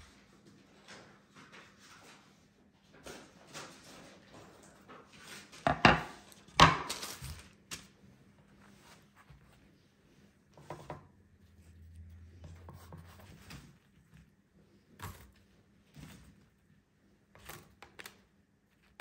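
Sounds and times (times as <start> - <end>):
kitchenware knocking and clattering: 5.6 - 7.0.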